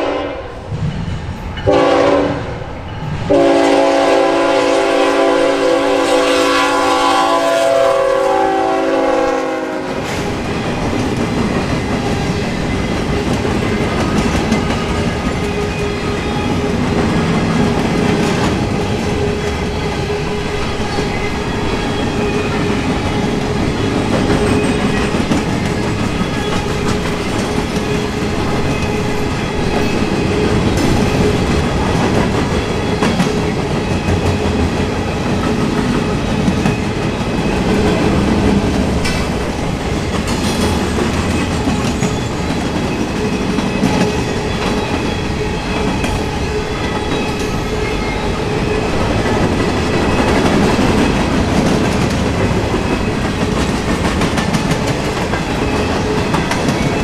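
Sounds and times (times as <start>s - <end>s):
locomotive horn chord: 0.0s - 0.5s, 1.7s - 2.5s, 3.3s - 10.0s
train cars rumbling past: 0.0s - 57.0s
wheels clicking over rail joints: 10.0s - 47.8s, 49.0s - 57.0s.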